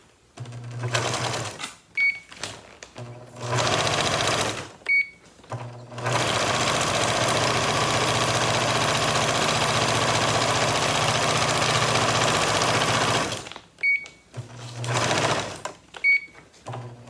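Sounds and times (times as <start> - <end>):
sewing machine stitching: 0.4 - 1.7, 3.0 - 4.8, 5.5 - 13.5, 14.3 - 15.8, 16.6 - 17.0.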